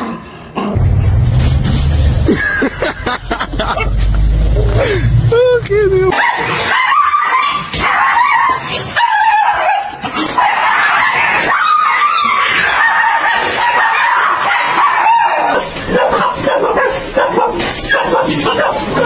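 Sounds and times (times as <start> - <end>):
dog yelping: 6.1 - 19.0.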